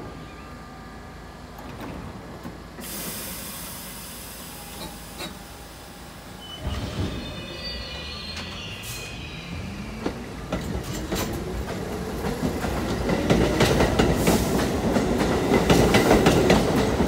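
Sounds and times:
steady train hum: 0.0 - 17.0
train rumbles and clunks: 0.8 - 17.0
hiss of brake air: 2.8 - 6.5.

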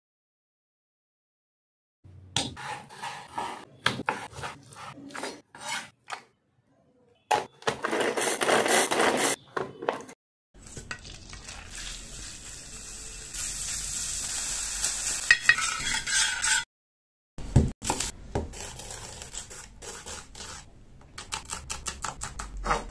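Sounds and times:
wooden spatula stirring: 2.6 - 5.9
minced chicken sizzling in butter: 11.0 - 15.3.

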